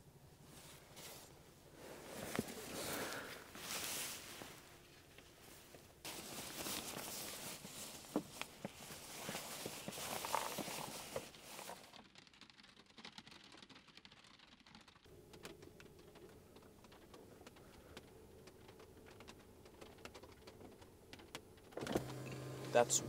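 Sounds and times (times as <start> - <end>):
rustling and handling noises: 0.3 - 22.9
quiet steady hum in car cabin: 21.8 - 23.0.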